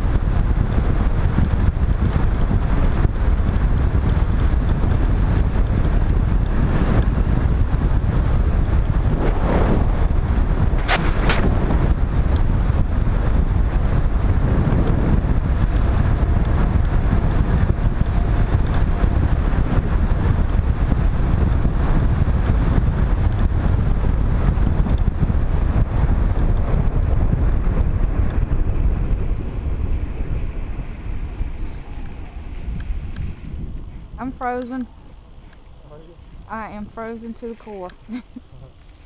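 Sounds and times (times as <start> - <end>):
wind rushing over microphone: 0.0 - 39.0.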